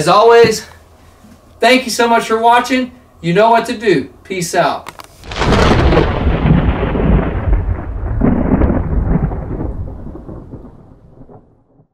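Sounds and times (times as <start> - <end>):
thunder clap rumbling: 5.2 - 11.9.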